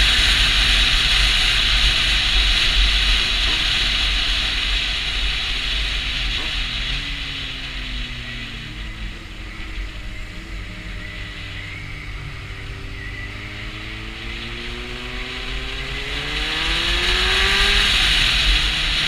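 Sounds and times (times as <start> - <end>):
motorcycle engine running: 0.0 - 19.0
wind rushing over microphone: 0.0 - 19.0.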